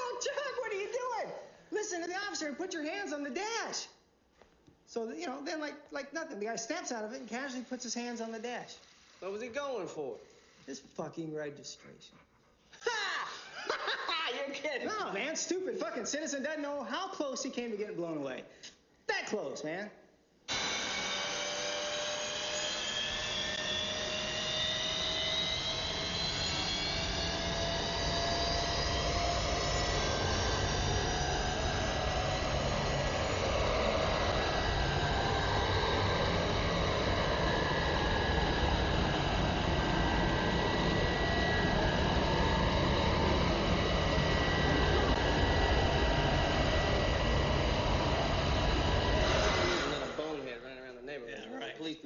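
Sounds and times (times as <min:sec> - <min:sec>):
hand dryer blowing air: 0:20.5 - 0:50.6
motor whine rising in pitch: 0:20.5 - 0:51.1.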